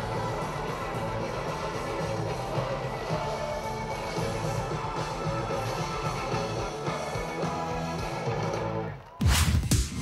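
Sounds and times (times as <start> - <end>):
live rock band: 0.0 - 9.1.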